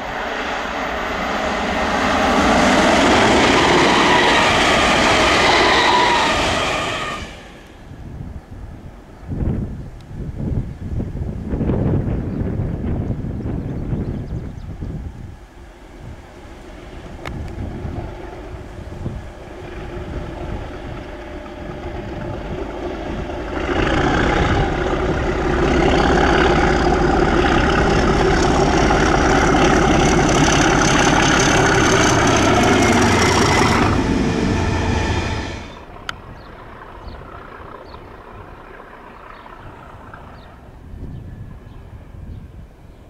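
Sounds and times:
diesel locomotive engine passing: 0:00.0 - 0:43.0
high whistle: 0:03.3 - 0:07.8.

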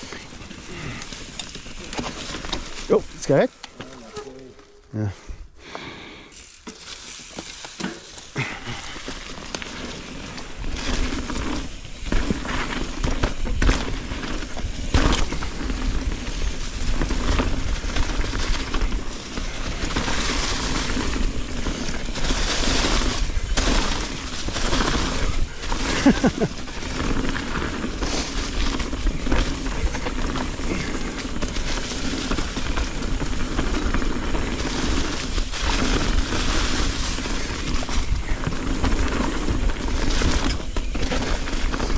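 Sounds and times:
bike clattering over bumps: 0:00.0 - 0:03.0, 0:06.6 - 0:41.9
tyres crunching through dry leaves: 0:06.4 - 0:41.9
wind rumbling on microphone: 0:10.6 - 0:41.9.

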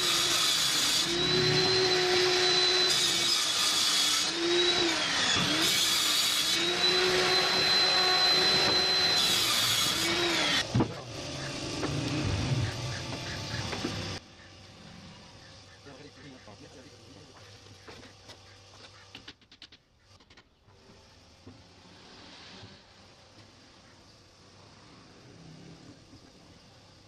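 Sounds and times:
power tool motor whine: 0:00.0 - 0:14.2.

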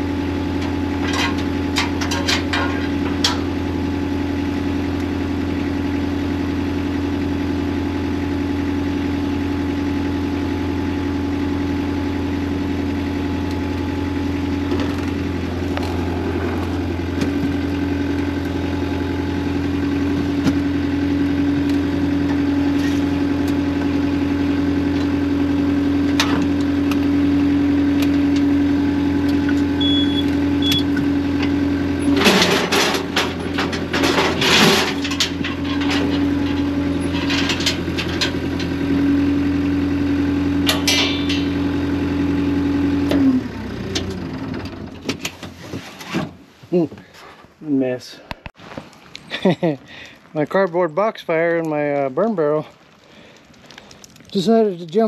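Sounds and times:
engine idling: 0:00.0 - 0:45.6
clattering knocks and rattles: 0:00.6 - 0:03.6, 0:31.0 - 0:38.8.

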